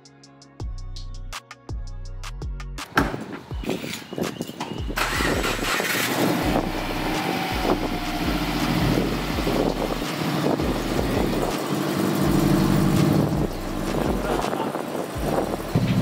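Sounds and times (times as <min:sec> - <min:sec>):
car engine running: 0:05.0 - 0:16.0.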